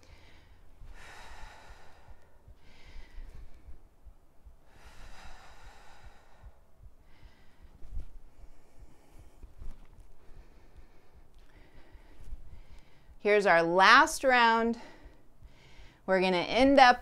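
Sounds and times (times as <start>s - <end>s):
woman breathing deeply: 0.0s - 13.2s, 14.7s - 16.1s.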